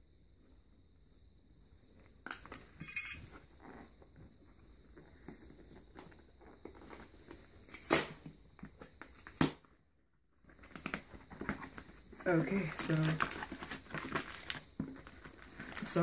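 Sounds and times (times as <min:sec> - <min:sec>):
cardboard and tape tearing: 0:06.6 - 0:08.3, 0:10.6 - 0:16.0
knife slitting box tape: 0:07.7 - 0:08.2.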